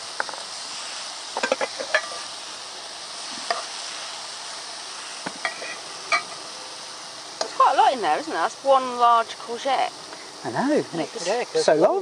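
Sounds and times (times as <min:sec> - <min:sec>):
courgette sizzling in a frying pan: 0:00.0 - 0:12.0
utensil scraping against pan: 0:01.4 - 0:02.3, 0:05.3 - 0:06.4.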